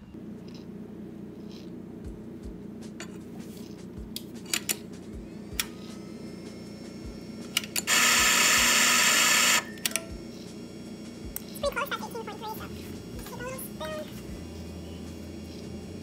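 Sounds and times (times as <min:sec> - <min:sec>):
coffee grinder grinding: 0:05.4 - 0:16.0.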